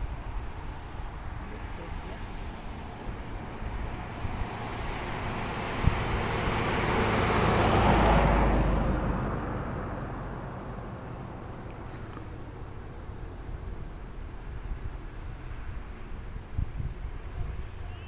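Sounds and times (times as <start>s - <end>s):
vehicle passing by: 0.0s - 18.0s.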